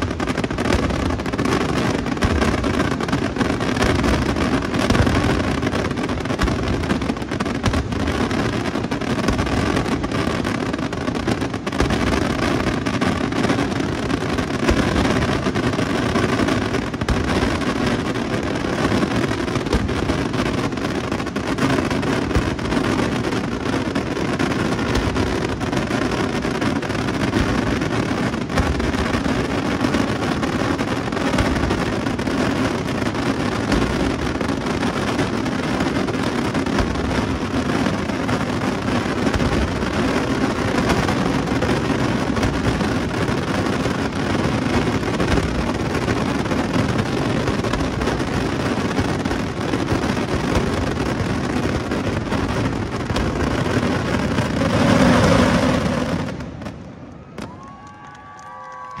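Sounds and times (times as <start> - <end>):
fireworks crackling and banging: 0.0 - 59.0.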